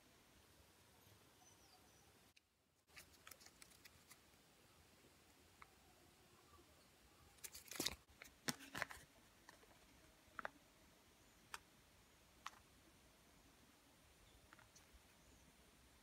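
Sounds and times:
paper rustling: 0:02.9 - 0:04.2, 0:07.4 - 0:09.7.

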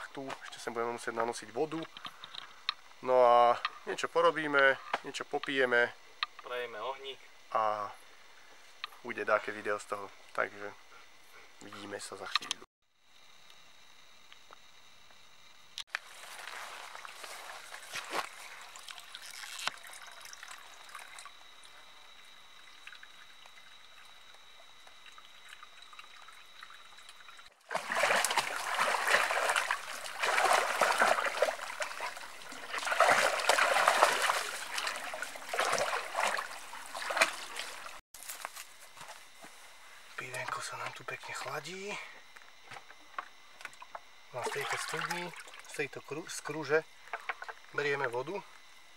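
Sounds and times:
water trickling into trough: 0:18.3 - 0:38.0
dog lapping water: 0:22.6 - 0:38.0.

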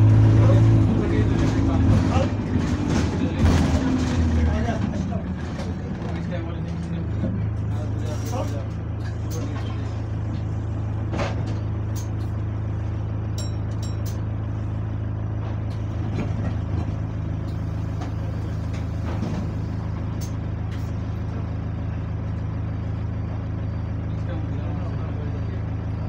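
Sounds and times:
bus engine idling: 0:00.0 - 0:26.0.

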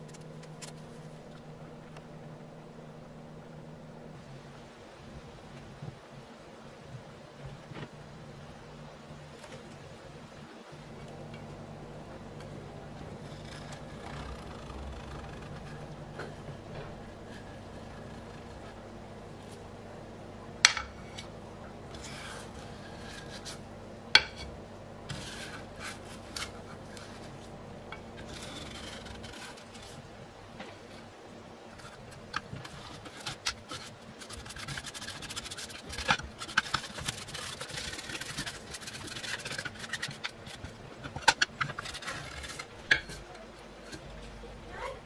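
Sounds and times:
steady low hum: 0:00.0 - 0:45.0
paintbrush scraping metal plate: 0:12.1 - 0:19.7, 0:20.6 - 0:31.1, 0:31.7 - 0:44.4.

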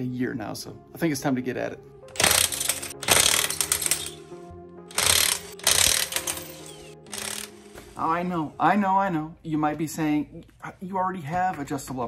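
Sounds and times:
background music: 0:00.0 - 0:12.0
impact wrench hammering lug nuts: 0:02.2 - 0:04.2, 0:04.9 - 0:06.4.

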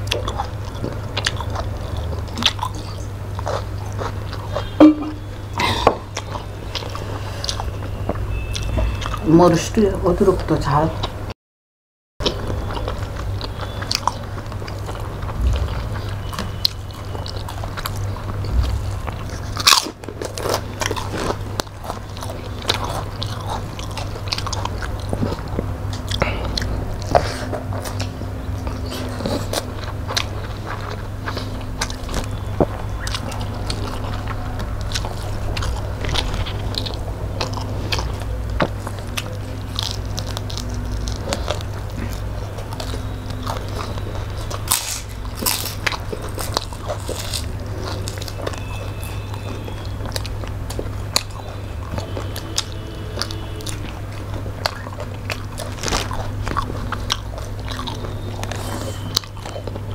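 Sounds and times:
steady low hum: 0:00.0 - 0:09.3, 0:12.2 - 0:59.9
chewing and biting food: 0:00.0 - 0:11.2, 0:12.2 - 0:59.9.

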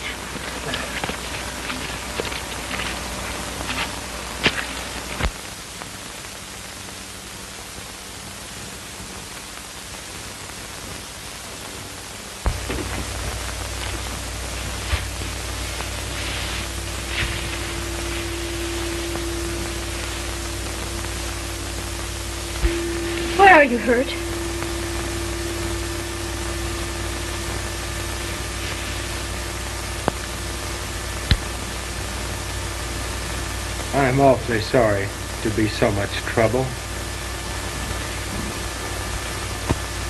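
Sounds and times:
faint steady tone: 0:00.0 - 0:40.0
film soundtrack hiss and crackle: 0:00.0 - 0:40.0
low hum: 0:12.1 - 0:40.0
clicks and pops: 0:31.2 - 0:31.6.

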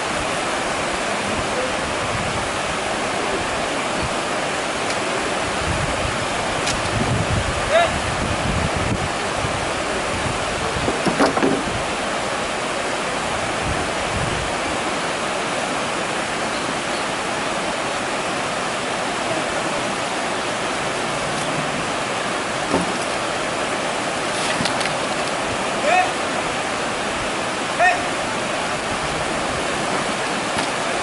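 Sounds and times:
flowing water rushing: 0:00.0 - 0:31.0.

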